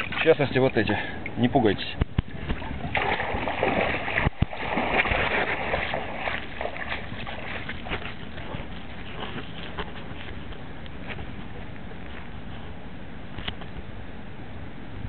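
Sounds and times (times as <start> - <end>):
water gushing and splashing: 2.2 - 9.8.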